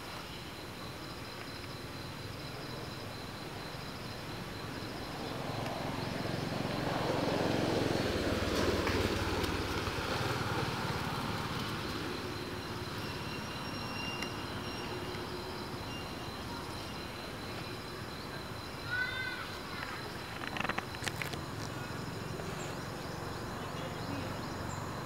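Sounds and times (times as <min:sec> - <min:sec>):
insects chirring: 0:00.0 - 0:25.0
motor vehicle passing: 0:04.4 - 0:13.1.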